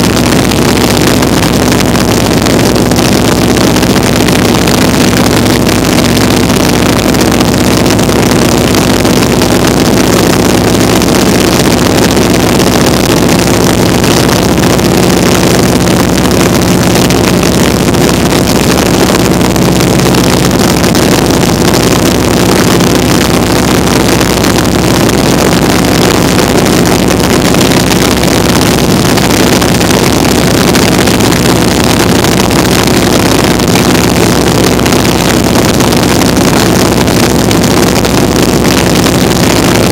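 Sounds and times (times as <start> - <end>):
biplane engine running: 0.0 - 39.9
wind rush on microphone: 0.0 - 39.9.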